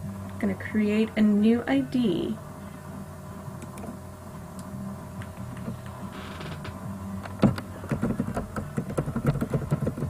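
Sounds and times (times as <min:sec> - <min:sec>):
low steady hum: 0:00.0 - 0:10.0
computer keyboard typing: 0:07.9 - 0:10.0.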